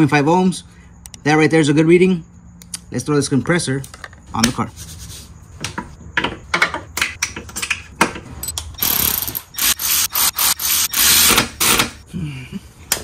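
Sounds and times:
metal parts clicking and knocking: 6.5s - 12.0s
cordless ratchet running: 8.8s - 11.8s.

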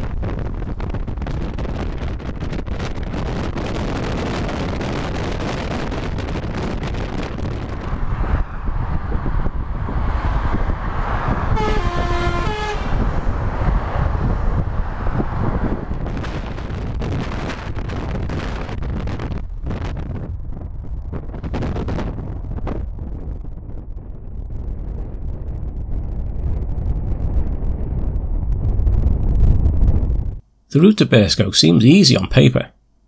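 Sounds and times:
motorway traffic noise: 0.0s - 21.1s
car road rumble: 0.0s - 29.3s
wind buffeting microphone: 0.0s - 30.4s
vehicle horn: 11.5s - 13.0s.

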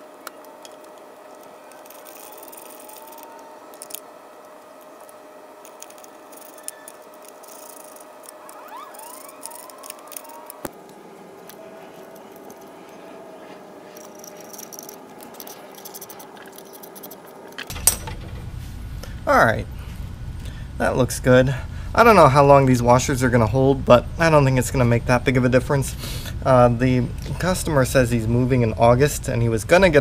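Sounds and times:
faint steady hum: 0.0s - 30.0s
bolts and tools clinking: 13.9s - 18.5s.

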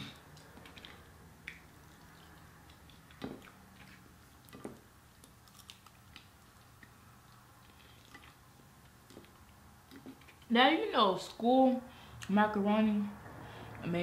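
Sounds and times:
person chewing: 0.0s - 10.5s.

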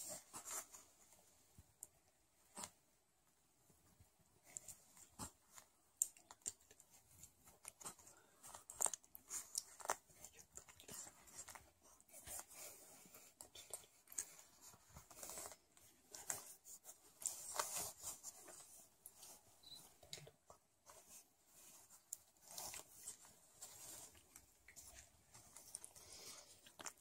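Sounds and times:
rustling on crinkly pad: 0.0s - 27.0s
soft clicks and wet smacking: 4.4s - 16.5s, 18.4s - 21.2s, 21.9s - 27.0s.

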